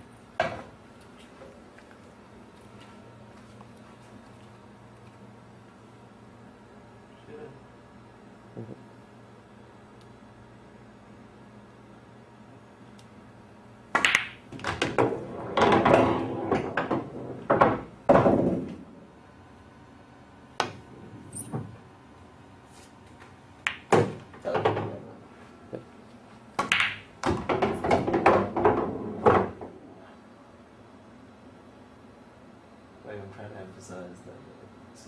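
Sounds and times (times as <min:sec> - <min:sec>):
pool balls clacking: 0:13.9 - 0:18.9, 0:23.7 - 0:25.9, 0:26.6 - 0:29.9.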